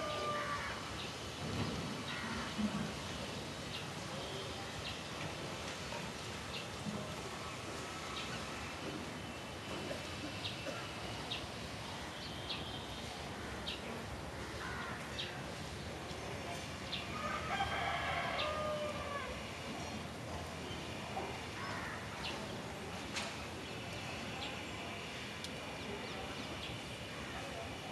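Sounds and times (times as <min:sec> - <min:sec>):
rooster crowing: 0:00.0 - 0:00.8, 0:17.1 - 0:19.4
outdoor city ambience: 0:00.0 - 0:27.9.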